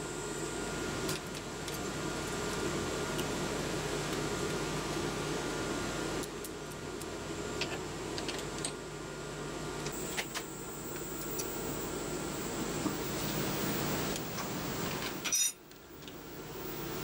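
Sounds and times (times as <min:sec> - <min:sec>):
workshop hum: 0:00.0 - 0:17.0
steady hiss: 0:09.9 - 0:17.0.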